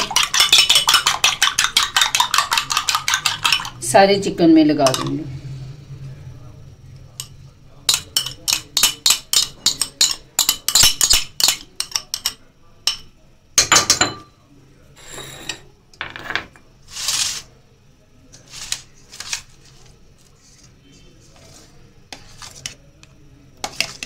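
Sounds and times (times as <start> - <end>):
spoon clinking against glass: 0.0 - 3.8, 7.2 - 14.3
spoon scraping steel bowl: 0.0 - 3.8.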